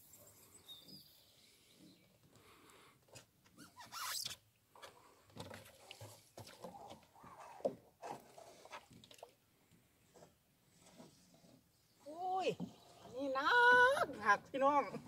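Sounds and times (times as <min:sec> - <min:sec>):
oar knocking and squeaking in oarlock: 0:03.6 - 0:09.3.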